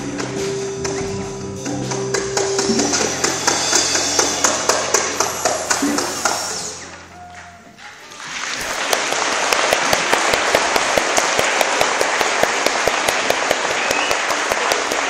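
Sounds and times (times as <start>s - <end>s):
audience applause: 2.6s - 15.0s
sharp claps close by: 8.2s - 15.0s.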